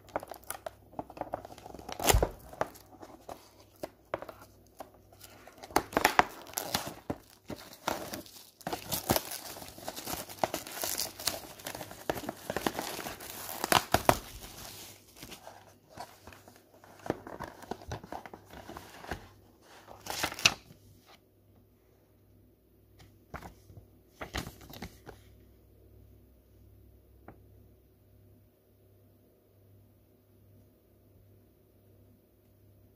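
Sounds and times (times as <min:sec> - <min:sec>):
plastic wrap crinkling and tearing: 0:00.0 - 0:20.7.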